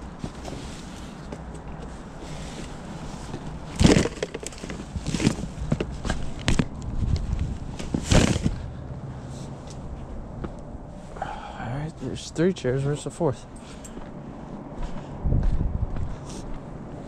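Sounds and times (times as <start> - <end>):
household items knocking: 3.8 - 5.9.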